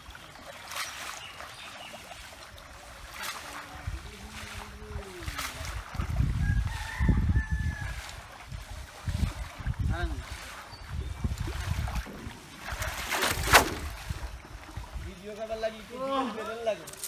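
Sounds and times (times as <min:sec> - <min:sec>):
rooster crowing: 0:06.4 - 0:08.2.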